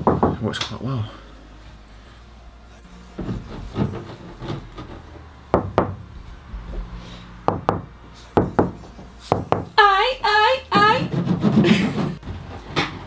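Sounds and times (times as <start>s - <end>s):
knocking on van wall panels: 0.0s - 0.5s, 3.2s - 6.2s, 7.5s - 9.8s.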